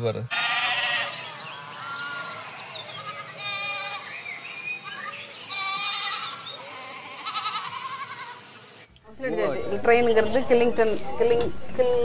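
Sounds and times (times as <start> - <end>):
sheep bleating: 0.3 - 4.2, 4.8 - 8.5.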